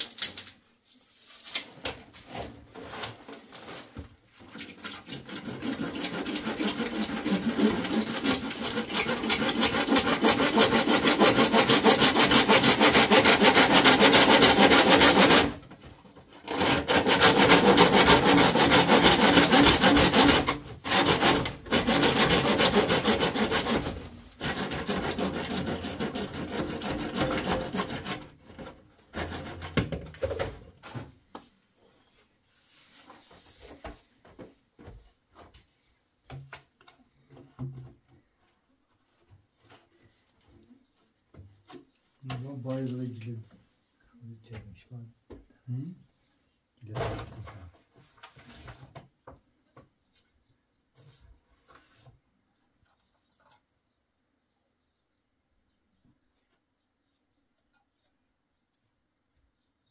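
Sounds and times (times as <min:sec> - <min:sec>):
hand saw cutting plastic pipe: 0:02.3 - 0:31.0.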